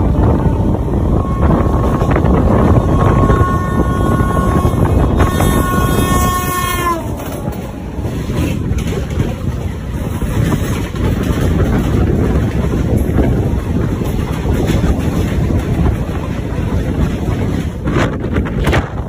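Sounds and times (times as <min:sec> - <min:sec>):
train horn: 0:00.0 - 0:08.8
train rumbling: 0:00.0 - 0:19.0
wind noise on microphone: 0:00.0 - 0:19.0.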